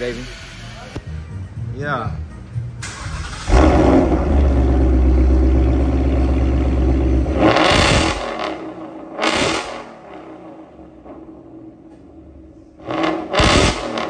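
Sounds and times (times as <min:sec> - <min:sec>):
car engine idling: 0:02.8 - 0:14.0
car engine revving: 0:02.8 - 0:14.0.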